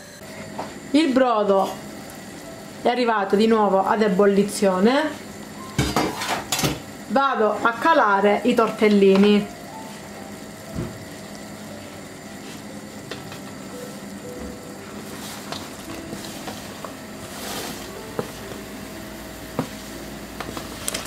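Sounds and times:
broth boiling in a pot: 0.2s - 21.0s
pasta sliding into pot: 15.0s - 18.4s.

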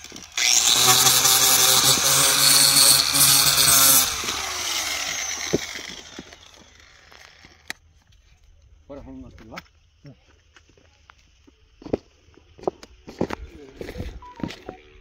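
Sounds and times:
angle grinder sanding: 0.0s - 7.6s.

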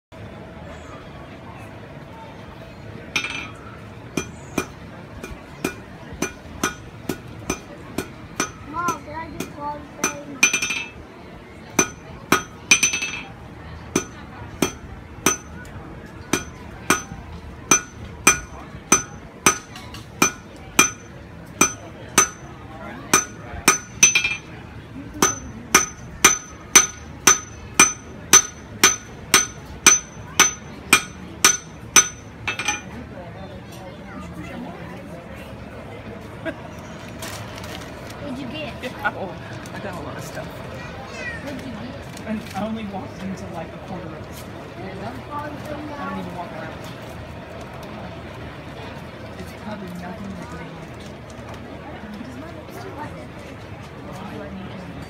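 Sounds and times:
hammer striking iron on anvil: 3.2s - 3.6s, 4.2s - 11.0s, 11.8s - 13.3s, 13.9s - 15.6s, 16.3s - 22.5s, 23.1s - 24.5s, 25.2s - 32.9s.

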